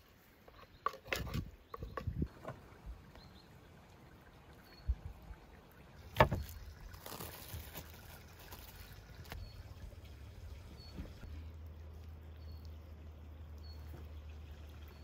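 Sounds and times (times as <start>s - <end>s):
cling film crinkling: 6.3s - 9.4s.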